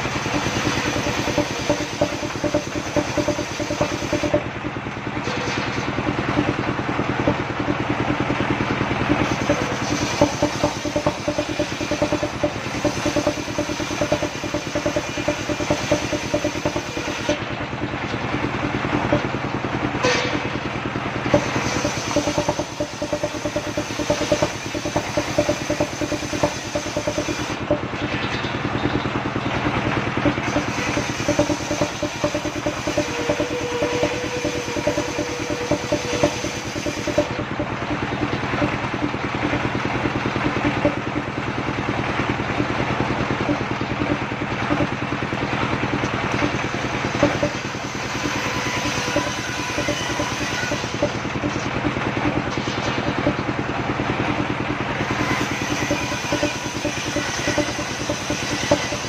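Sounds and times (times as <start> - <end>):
sawmill engine running: 0.0 - 59.0.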